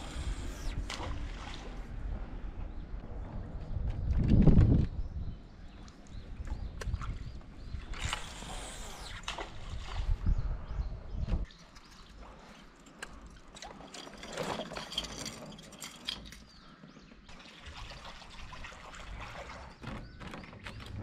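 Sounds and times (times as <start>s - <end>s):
water trickling and splashing: 17.3s - 21.0s.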